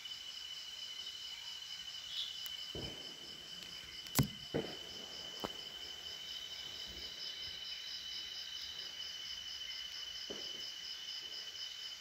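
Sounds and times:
night insects trilling: 0:00.0 - 0:12.0
fire crackles: 0:02.4 - 0:06.2.

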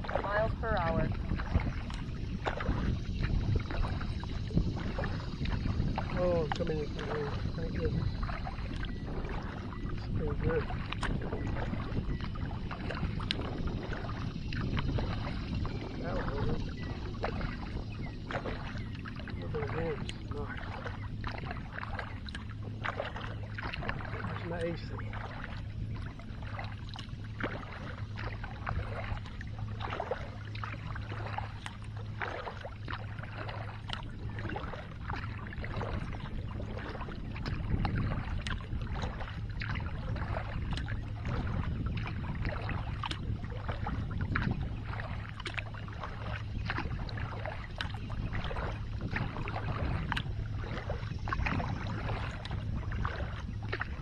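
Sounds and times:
low steady hum: 0:00.0 - 0:54.0
paddle strokes splashing in water: 0:00.0 - 0:54.0
water dripping: 0:46.7 - 0:49.2, 0:50.0 - 0:53.8.

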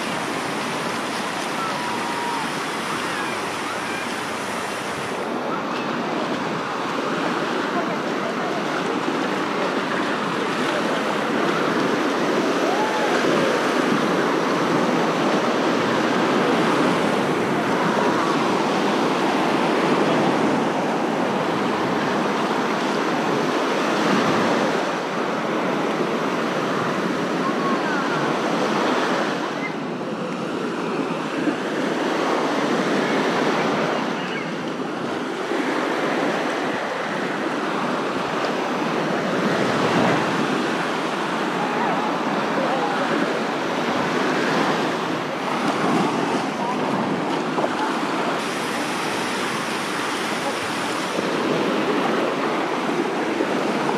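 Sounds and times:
faint voices of people: 0:00.0 - 0:53.9
small waves washing on shore: 0:00.0 - 0:53.9.

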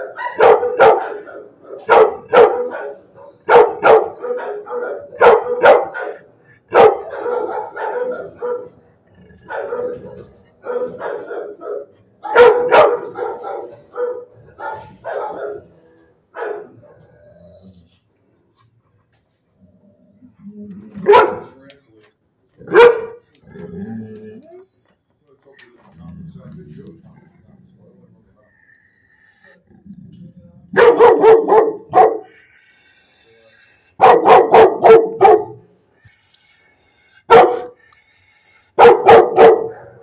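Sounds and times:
dog barking: 0:00.0 - 0:17.1, 0:21.0 - 0:21.6, 0:22.6 - 0:23.2, 0:30.7 - 0:32.4, 0:34.0 - 0:35.7, 0:37.3 - 0:37.8, 0:38.8 - 0:40.0.

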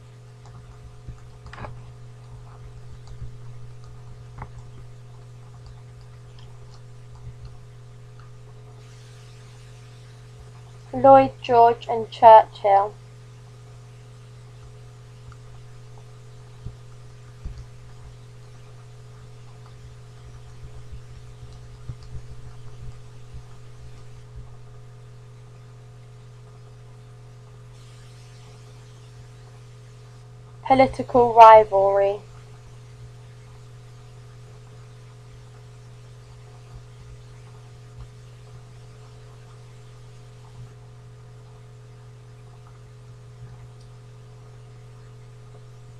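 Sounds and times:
low electrical hum with hiss: 0:00.0 - 0:45.9
faint ticks: 0:00.4 - 0:08.7, 0:14.5 - 0:24.6
faint hiss: 0:08.7 - 0:11.0.

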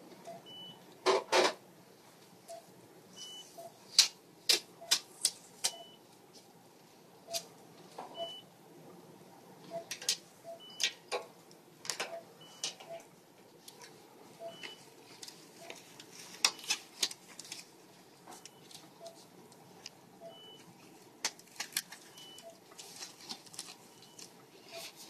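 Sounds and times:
tubing and tape clicks and rustles: 0:21.2 - 0:25.0.

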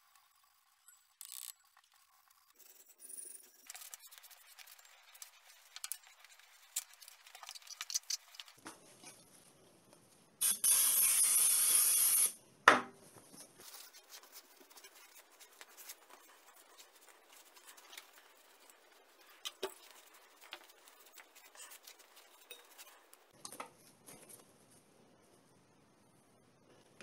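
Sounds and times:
aerosol spray can hissing: 0:10.4 - 0:12.4.

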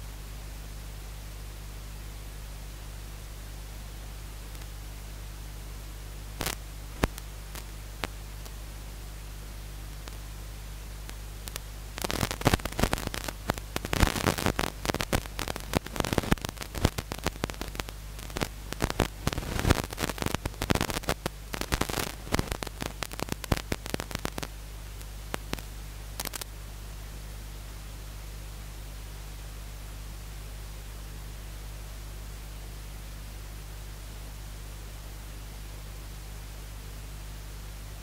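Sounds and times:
crackling static: 0:00.0 - 0:38.0.

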